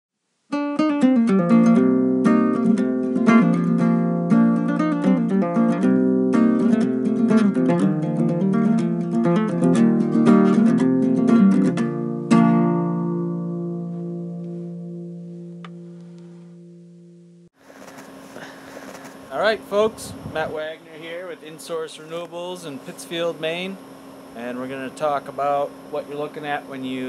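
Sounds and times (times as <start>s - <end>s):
acoustic guitar plucking: 0.5s - 17.5s.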